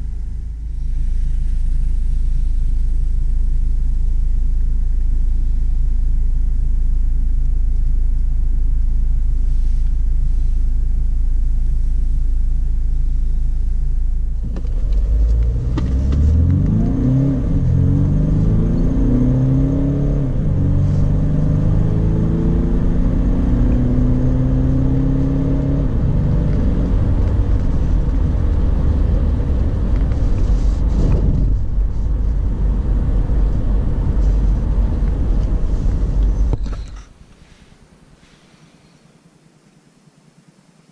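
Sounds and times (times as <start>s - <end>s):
road noise: 0.0s - 39.7s
car engine drone: 0.0s - 40.9s.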